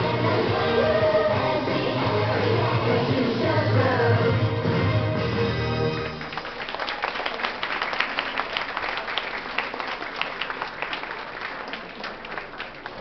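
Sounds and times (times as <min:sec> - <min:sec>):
audience clapping: 0:05.8 - 0:13.0.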